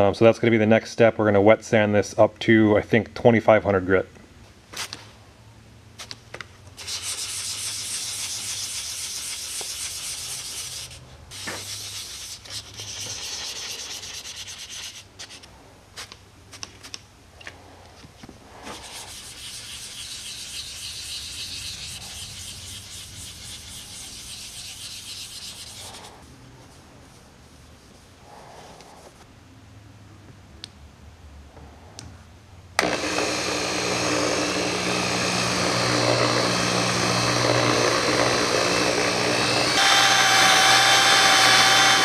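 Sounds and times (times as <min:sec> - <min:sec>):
wet sanding hiss: 0:06.8 - 0:15.1, 0:18.5 - 0:26.3.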